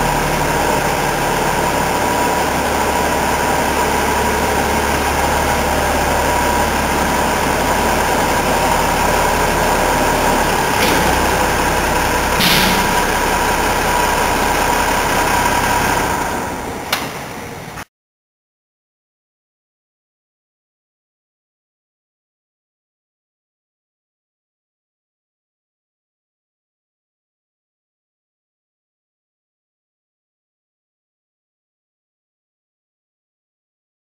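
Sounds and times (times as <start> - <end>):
tractor engine idling: 0.0 - 17.8
brief sharp noises: 12.4 - 13.3.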